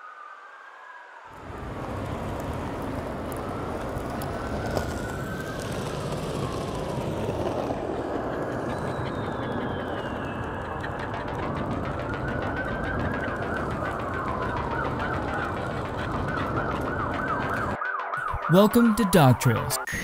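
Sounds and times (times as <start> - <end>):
siren wailing: 0.0 - 20.0.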